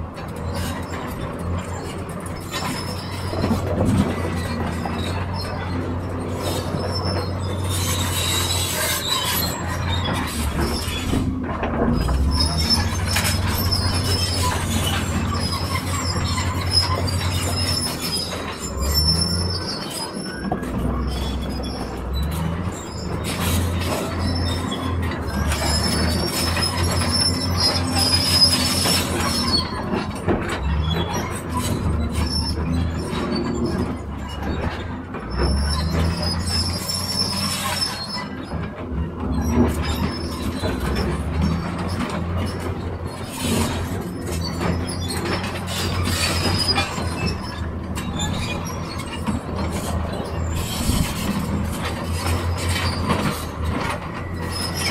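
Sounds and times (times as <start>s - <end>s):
excavator diesel engine running: 0.0s - 54.9s
high-pitched squealing: 2.4s - 38.6s.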